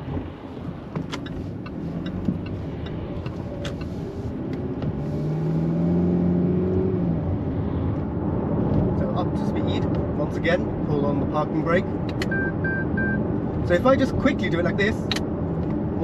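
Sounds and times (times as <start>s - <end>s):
road noise inside car: 0.0s - 16.0s
car engine accelerating: 0.1s - 10.8s.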